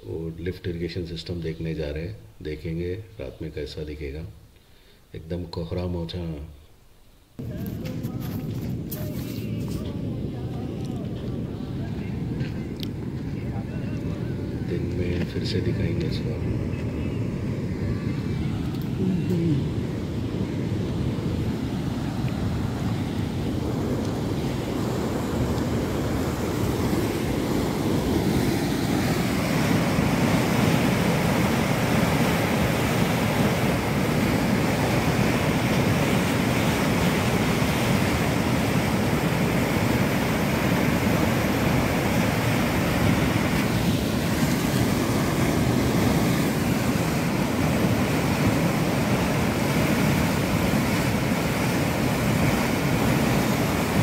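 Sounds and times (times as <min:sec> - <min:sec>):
turbulent water rushing: 0:07.4 - 0:54.0.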